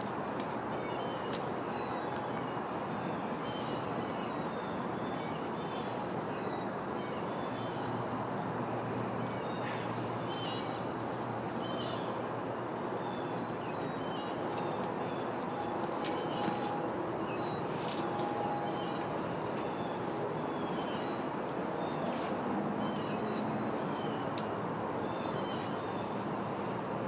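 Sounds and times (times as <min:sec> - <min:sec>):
outdoor background noise: 0:00.0 - 0:27.0.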